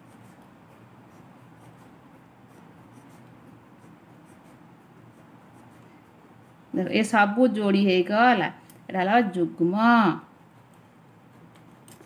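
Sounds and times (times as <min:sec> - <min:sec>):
pen scratching on paper: 0:00.0 - 0:07.2, 0:10.1 - 0:12.0.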